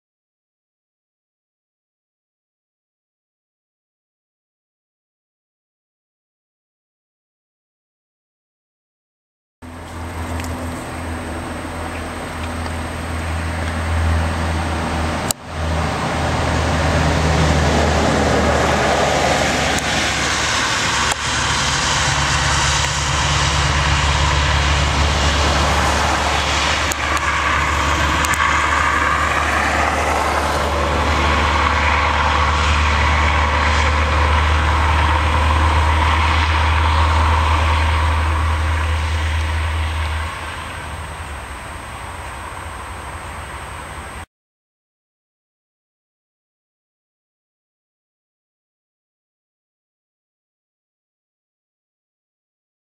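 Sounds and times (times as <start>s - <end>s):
diesel engine rumbling: 9.6s - 44.2s.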